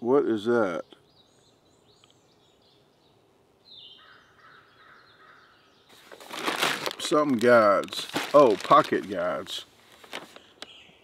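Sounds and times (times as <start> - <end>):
birds chirping: 0.0 - 11.0
rustling: 5.9 - 10.7.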